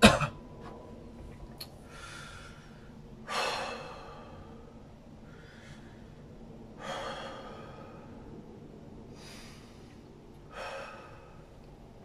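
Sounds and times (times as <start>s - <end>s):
man breathing deeply: 1.8s - 12.0s.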